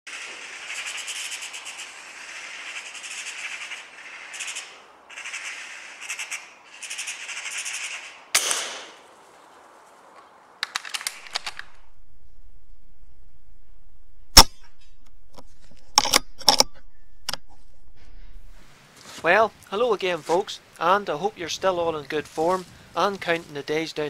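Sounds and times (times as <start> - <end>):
magpie chattering: 0.1 - 8.2
rifle shot: 8.3 - 9.0, 14.3 - 15.0
quick run of clicks: 10.6 - 11.9.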